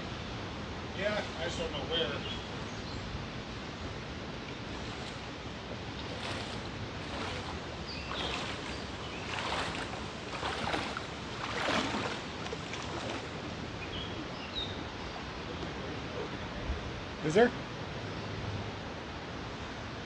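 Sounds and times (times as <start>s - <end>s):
flowing water rushing: 0.0s - 17.4s
footsteps splashing through water: 4.5s - 13.5s.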